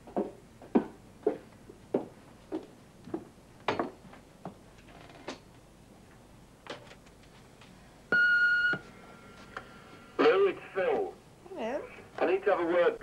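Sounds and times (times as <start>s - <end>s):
high heels on wooden floor: 0.0s - 4.6s
answering machine beep: 8.1s - 8.8s.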